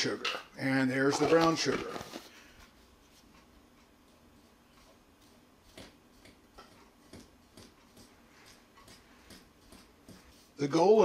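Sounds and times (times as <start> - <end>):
fingers mixing butter in a bowl: 3.0 - 11.0.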